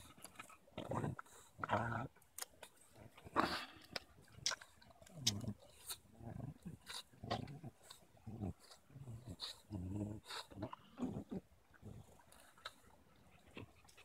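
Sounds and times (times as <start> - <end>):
dog growling: 0.7 - 2.2, 5.2 - 12.1
wood cracking between teeth: 2.1 - 6.0.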